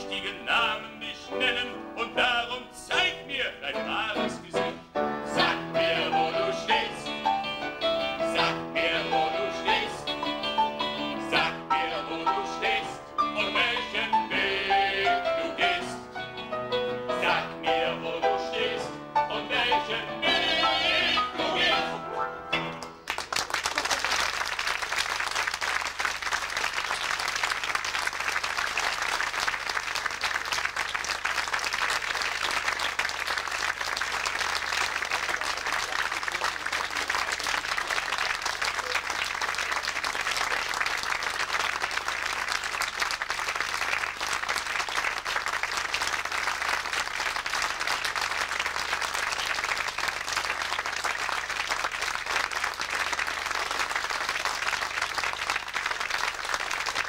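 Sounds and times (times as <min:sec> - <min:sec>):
audience applauding: 0:22.7 - 0:57.0.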